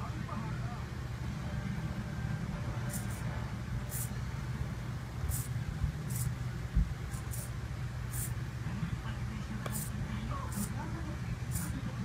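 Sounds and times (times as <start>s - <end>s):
steady low hum: 0.0s - 12.0s
servo whirring in high-pitched bursts: 3.9s - 4.2s, 5.3s - 6.4s, 7.0s - 8.4s.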